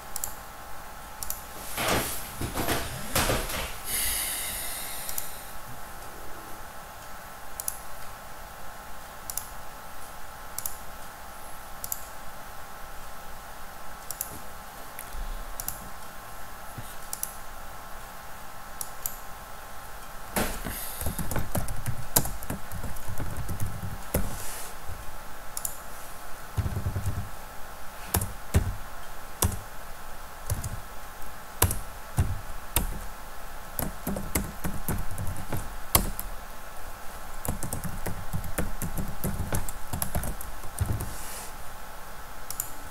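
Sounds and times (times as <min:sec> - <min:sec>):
computer keyboard typing: 0:20.4 - 0:24.3, 0:26.6 - 0:27.3, 0:28.1 - 0:28.8, 0:29.4 - 0:29.7, 0:30.4 - 0:30.9, 0:31.6 - 0:33.1, 0:33.8 - 0:36.3, 0:37.3 - 0:41.1.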